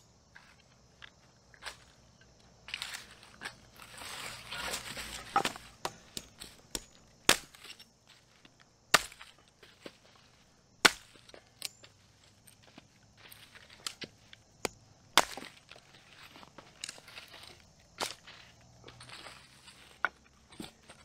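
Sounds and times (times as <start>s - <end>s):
hatchet chopping branches: 2.8s - 7.9s, 8.9s - 10.0s, 10.8s - 11.8s, 13.8s - 15.8s.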